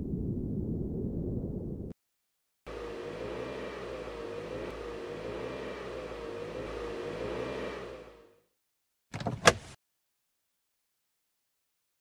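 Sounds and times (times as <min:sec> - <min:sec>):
car engine running: 0:02.7 - 0:08.4.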